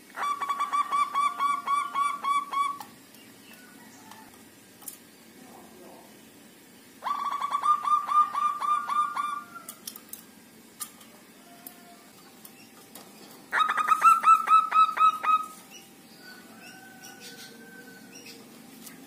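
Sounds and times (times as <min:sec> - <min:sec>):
dove singing staccato notes: 0:07.0 - 0:09.4, 0:12.2 - 0:17.6.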